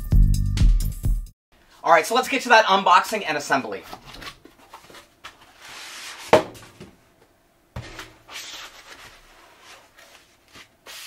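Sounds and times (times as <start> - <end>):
cardboard and packaging rubbing: 4.1 - 6.4, 7.8 - 11.0.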